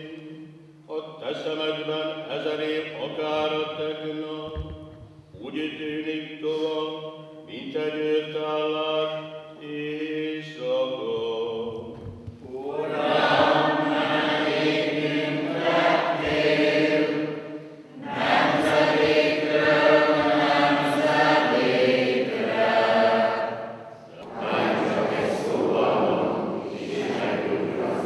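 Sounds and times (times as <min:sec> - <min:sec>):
man chanting: 0:00.0 - 0:04.8, 0:05.4 - 0:12.8
congregation singing: 0:00.0 - 0:28.0.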